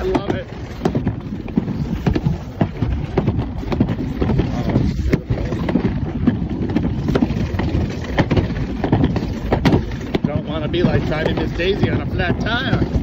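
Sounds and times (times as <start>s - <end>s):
quick clattering knocks: 0.0s - 13.0s
sled rumbling down track: 0.0s - 13.0s
wind buffeting microphone: 0.0s - 13.0s.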